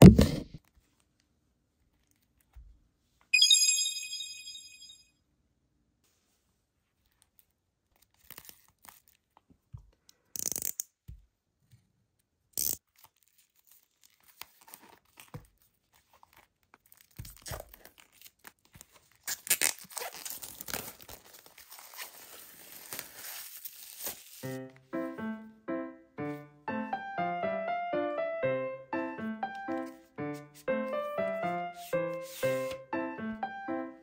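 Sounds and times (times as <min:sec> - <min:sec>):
plastic shrink wrap crackling: 0:16.0 - 0:24.5.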